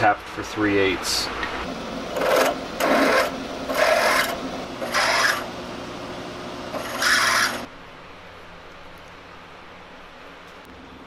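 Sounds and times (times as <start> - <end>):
motor hum: 1.4 - 7.7
drill cutting through steel: 1.7 - 7.7.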